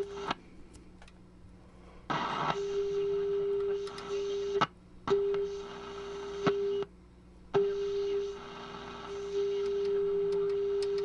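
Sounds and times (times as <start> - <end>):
radio test tone: 2.1 - 6.9, 7.6 - 11.0.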